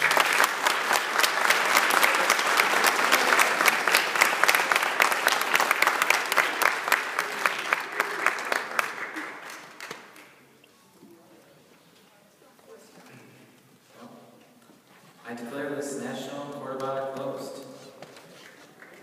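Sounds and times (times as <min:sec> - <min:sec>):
audience applauding: 0:00.0 - 0:10.4, 0:18.4 - 0:19.0
close loud hand claps: 0:00.0 - 0:10.4.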